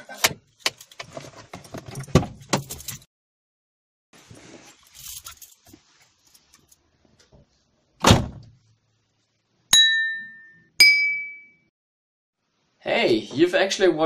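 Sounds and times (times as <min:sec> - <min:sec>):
bright ringing ding: 0:09.7 - 0:11.7.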